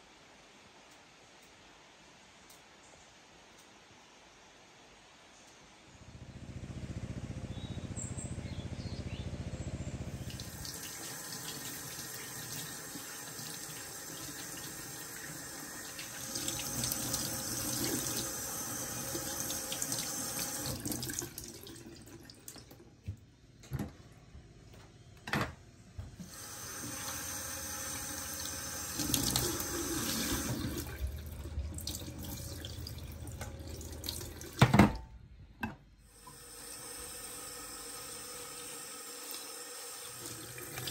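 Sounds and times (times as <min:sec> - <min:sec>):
tap water splashing in sink: 0:28.9 - 0:35.0.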